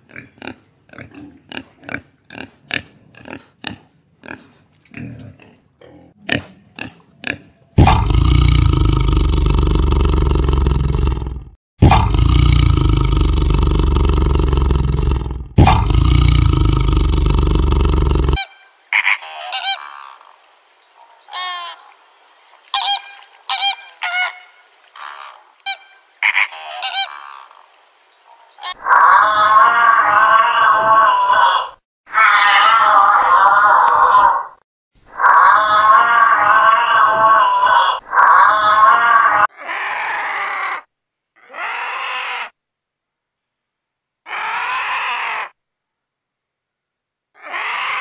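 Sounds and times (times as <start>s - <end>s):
tiger roaring: 7.8s - 18.4s.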